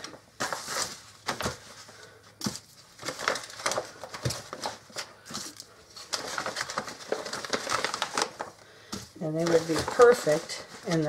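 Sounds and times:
crinkling foil: 0:00.4 - 0:11.0
rustling plastic bag: 0:02.8 - 0:08.6, 0:09.2 - 0:11.0.

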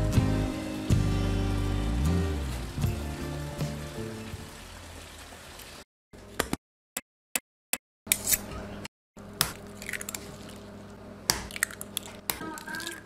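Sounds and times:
eggs cracking on wooden board: 0:09.4 - 0:10.6, 0:11.3 - 0:13.0.

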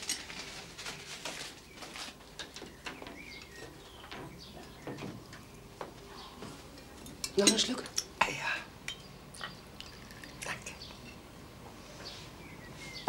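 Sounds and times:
china cups and cutlery clinking: 0:06.8 - 0:08.1.

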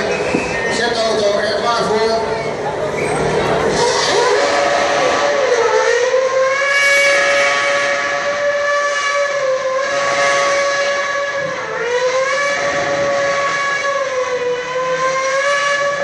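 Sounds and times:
racing car engine at high revs: 0:02.7 - 0:16.0.

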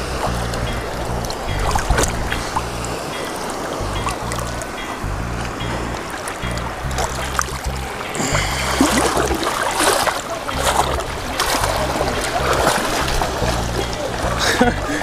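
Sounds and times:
background music with bass line: 0:00.0 - 0:15.0
water sloshing and splashing: 0:00.0 - 0:15.0.

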